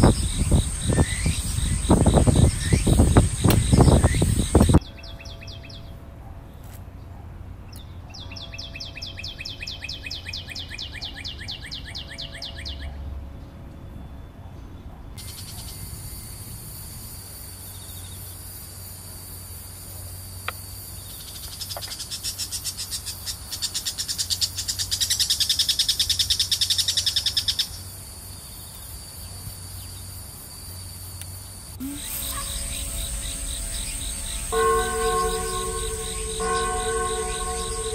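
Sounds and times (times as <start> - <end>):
insect buzzing and trilling: 0.0 - 4.8, 28.3 - 37.9.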